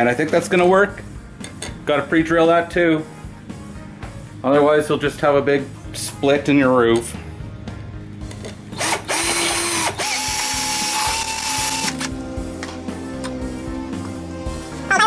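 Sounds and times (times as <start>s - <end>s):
cordless drill boring into wood: 8.8s - 12.1s.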